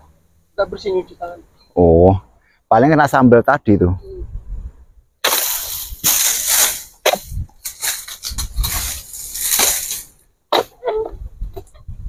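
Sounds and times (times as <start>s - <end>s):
palm fronds rustling and scraping: 5.2s - 10.8s.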